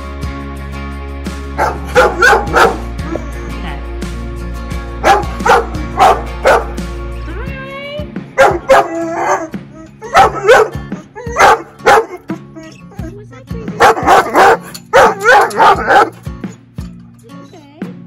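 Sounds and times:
background music: 0.0s - 18.0s
dog barking deeply: 1.6s - 2.9s, 5.0s - 6.8s, 8.4s - 12.4s, 13.8s - 16.2s.

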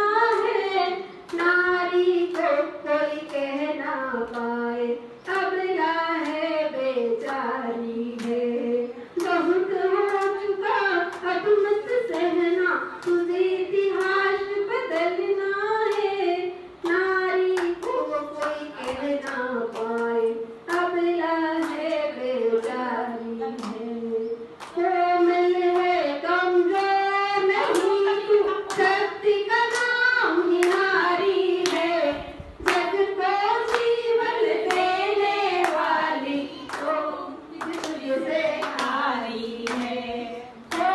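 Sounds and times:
woman singing into a microphone: 0.0s - 40.9s
hand claps: 1.3s - 1.6s, 2.2s - 2.6s, 3.2s - 4.6s, 6.2s - 6.5s, 7.2s - 7.5s, 8.1s - 8.4s, 9.2s - 10.4s, 11.1s - 11.4s, 12.1s - 12.4s, 13.0s - 13.3s, 13.9s - 14.2s, 16.8s - 20.9s, 21.6s - 22.0s, 22.6s - 22.8s, 23.6s - 23.8s, 24.6s - 24.8s, 25.7s - 25.9s, 27.6s - 28.1s, 29.6s - 30.0s, 30.6s - 30.9s, 31.6s - 31.8s, 32.6s - 33.0s, 33.6s - 34.0s, 34.6s - 34.9s, 35.6s - 37.0s, 37.6s - 40.0s, 40.7s - 40.9s.

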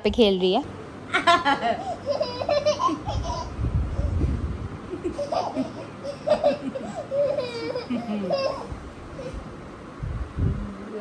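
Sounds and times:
baby laughing and squealing: 1.8s - 4.2s, 5.0s - 9.4s
low rumble of movement: 2.0s - 6.6s, 7.4s - 11.0s
woman laughing: 4.9s - 8.7s.

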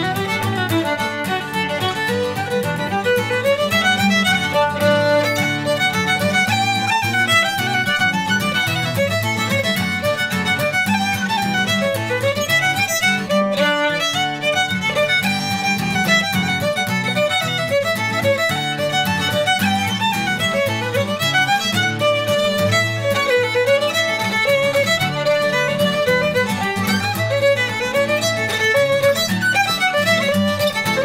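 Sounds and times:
acoustic guitar strumming: 0.0s - 31.0s
fiddle playing dance tune: 0.0s - 31.0s.

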